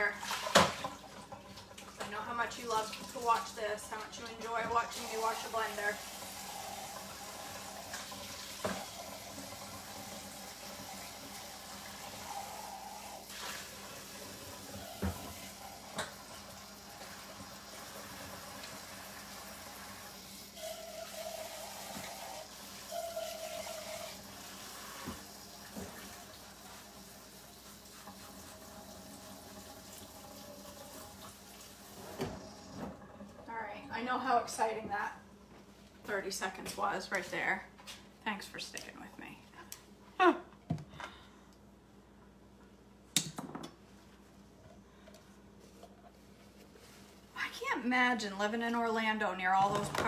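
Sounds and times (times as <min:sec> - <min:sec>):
blender jar being washed: 0:00.0 - 0:32.9
faucet running into sink: 0:00.0 - 0:33.5.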